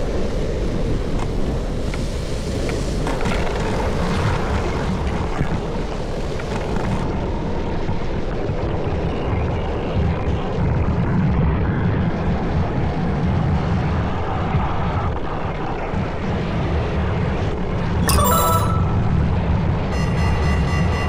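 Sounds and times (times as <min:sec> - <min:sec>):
skate wheels rumbling on asphalt: 0:00.0 - 0:07.1
brief electronic tone: 0:18.1 - 0:19.2.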